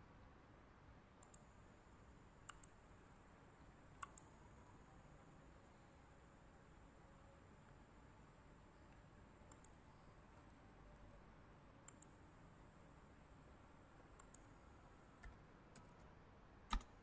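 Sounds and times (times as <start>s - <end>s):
computer mouse and keyboard clicks: 2.4s - 2.8s, 4.0s - 4.3s, 11.8s - 12.2s, 14.2s - 14.5s, 16.7s - 17.0s.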